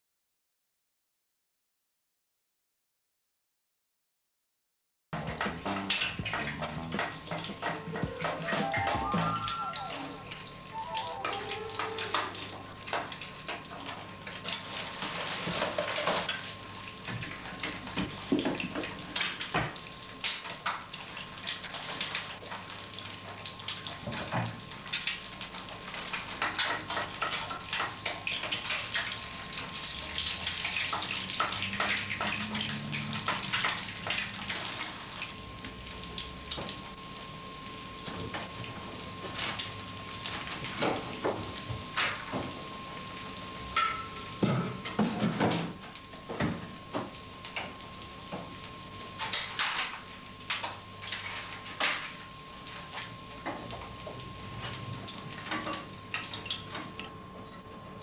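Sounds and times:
faint steady high tone: 7.7 - 12.5.

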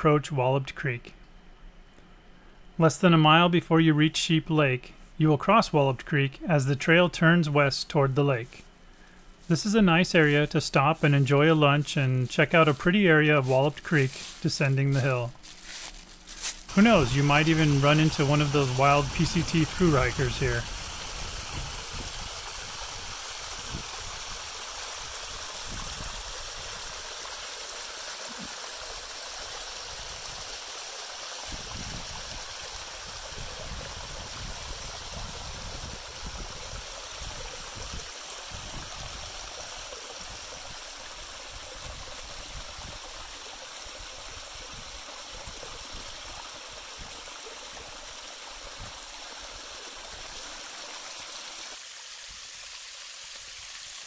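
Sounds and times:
creek splashing over rocks: 12.8 - 54.0.

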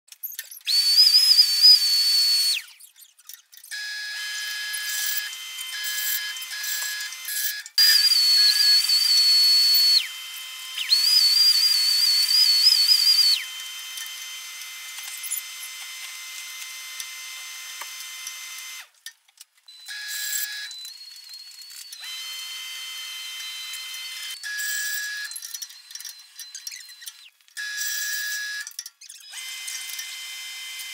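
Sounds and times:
band saw cutting wood: 3.6 - 18.9.

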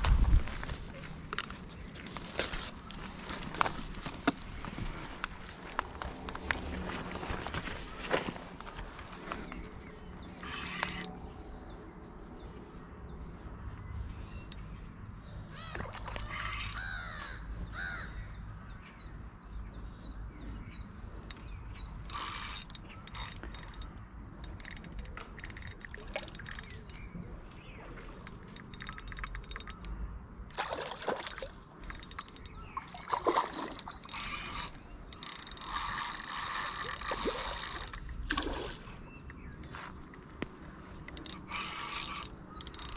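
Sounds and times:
spinning reel clicking and ratcheting: 10.4 - 11.2, 16.5 - 16.9, 21.2 - 27.0, 28.3 - 29.9, 31.8 - 32.6, 33.9 - 38.1, 41.0 - 42.9
fish splashing at the surface: 32.8 - 34.0.

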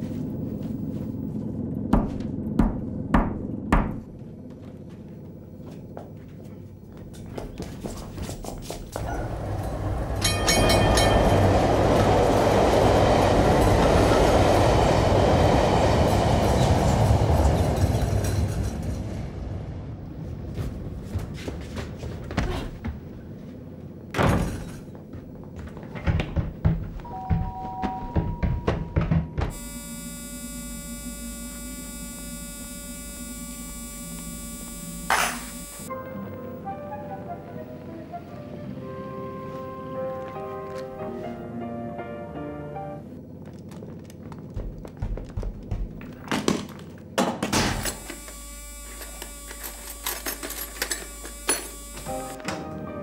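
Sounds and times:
electrical mains hum: 0.0 - 53.0
knocks: 1.9 - 4.0.

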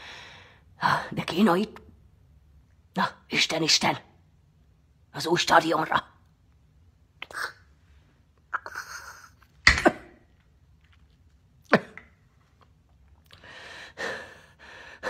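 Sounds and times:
woman coughing and spluttering: 11.6 - 12.2
heavy breathing: 13.3 - 15.0.

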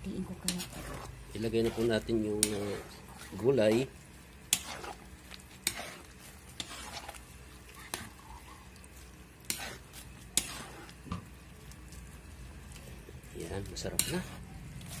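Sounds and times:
metal utensil scraping a wok: 0.3 - 8.6, 9.4 - 11.0, 13.7 - 15.0.

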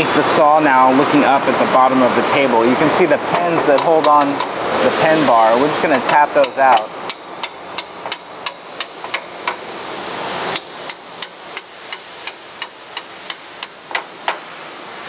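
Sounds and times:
hammer tapping metal pins: 6.0 - 9.6.

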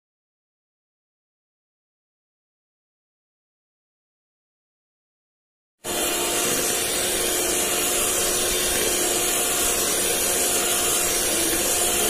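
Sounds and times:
electric hand mixer whining: 5.8 - 12.0
beaters whipping cream in bowl: 5.9 - 12.0.

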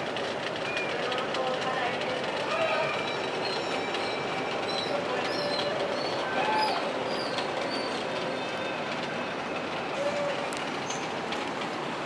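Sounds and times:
steady rushing background noise: 0.0 - 12.0
faint voices: 0.8 - 3.7, 4.6 - 7.1, 9.9 - 10.6.

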